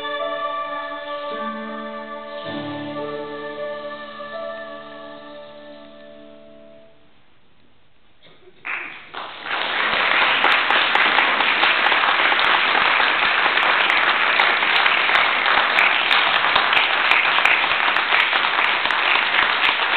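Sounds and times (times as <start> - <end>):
audience applause: 8.6 - 19.9.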